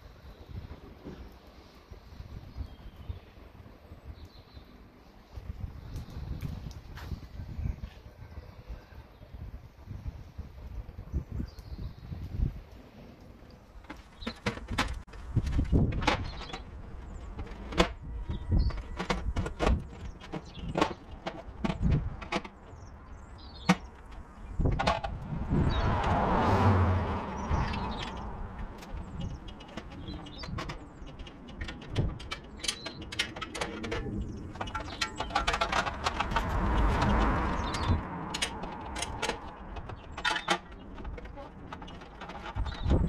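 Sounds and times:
clicks and knocks: 27.5s - 43.0s.

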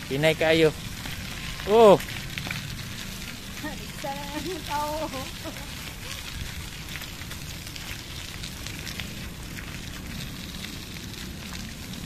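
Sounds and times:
gravel crunching under tyres and feet: 0.7s - 3.8s.

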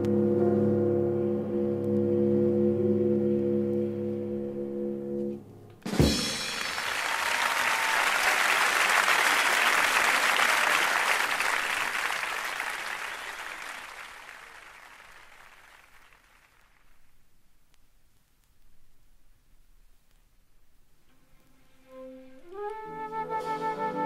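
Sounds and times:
jazz band held chord: 0.0s - 6.9s, 21.9s - 24.0s
audience applauding: 6.2s - 17.0s.

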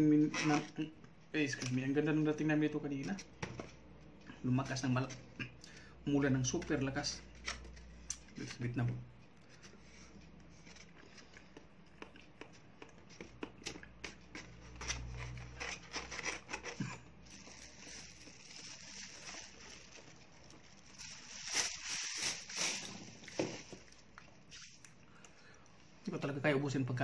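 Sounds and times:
plastic bag rustling: 14.7s - 24.8s.

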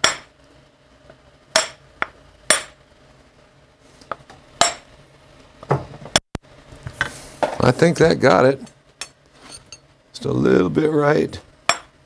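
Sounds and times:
hammer striking metal: 0.0s - 0.3s, 1.5s - 2.8s, 4.6s - 4.9s, 11.7s - 12.0s.

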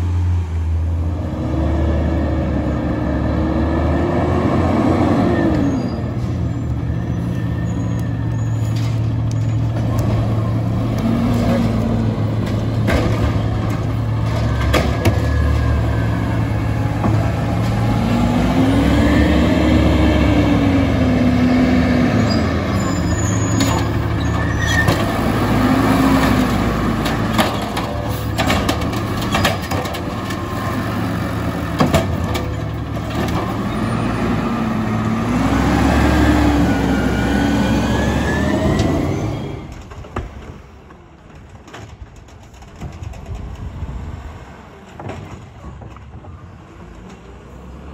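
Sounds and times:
garbage truck engine revving: 0.9s - 6.4s, 8.2s - 40.1s.

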